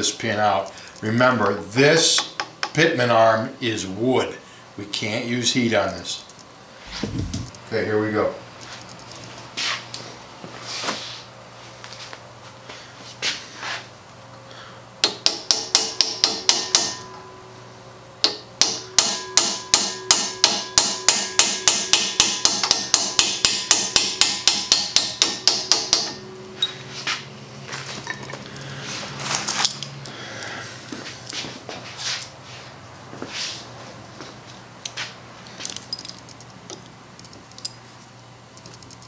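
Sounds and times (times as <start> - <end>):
hammer tapping metal nail: 15.0 - 17.0, 18.2 - 26.8.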